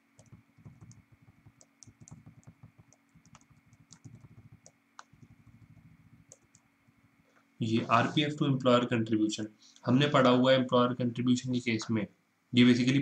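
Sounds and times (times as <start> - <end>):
computer keyboard typing: 0.0 - 7.2.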